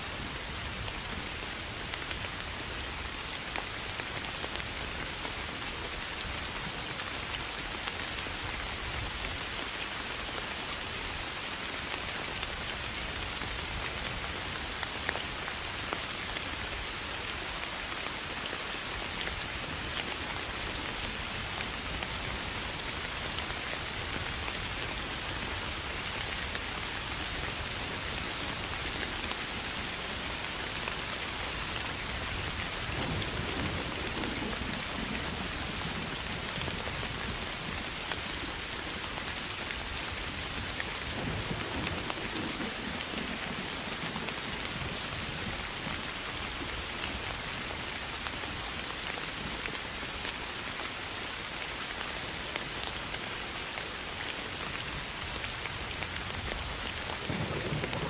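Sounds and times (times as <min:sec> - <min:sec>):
steady rain falling: 0:00.0 - 0:58.0
low thunder rumbles: 0:32.4 - 0:37.8, 0:57.0 - 0:58.0.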